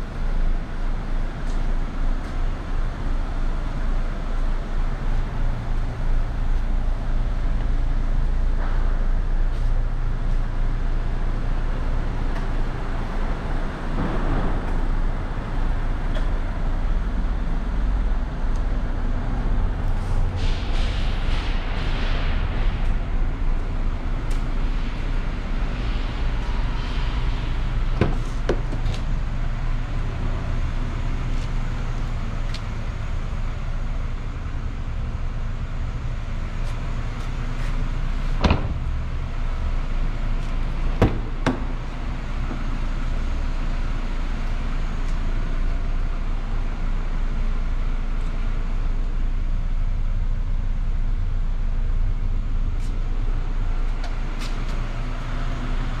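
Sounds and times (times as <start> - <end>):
low hum and rumble: 0.0 - 56.0
sharp knocks: 41.0 - 41.8.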